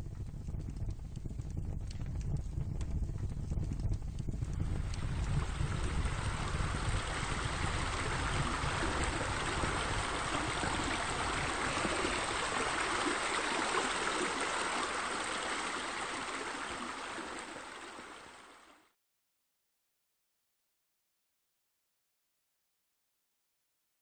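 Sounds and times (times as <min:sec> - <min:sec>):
flowing water rushing: 0:04.6 - 0:18.9.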